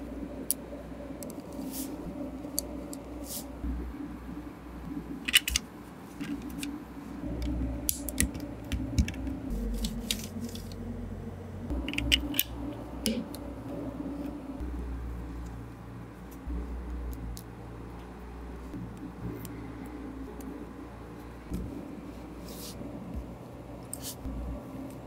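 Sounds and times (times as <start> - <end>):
plastic bricks clicking together: 5.3 - 5.6.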